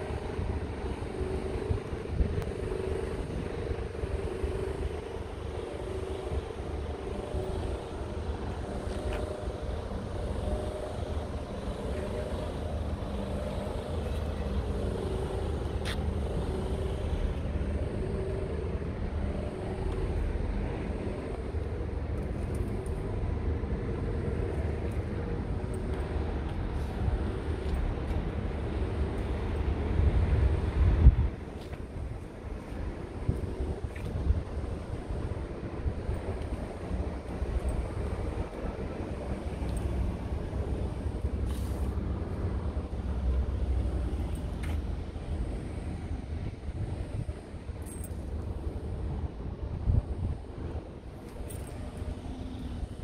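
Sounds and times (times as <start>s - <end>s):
engine droning: 0.0s - 53.0s
wind rumble on microphone: 0.0s - 53.0s.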